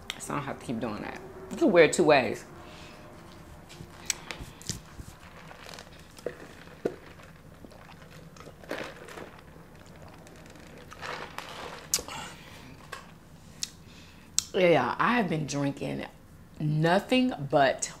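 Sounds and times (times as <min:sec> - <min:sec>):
crunchy chewing: 0:03.2 - 0:12.2
food wrapper crinkling: 0:03.9 - 0:12.1.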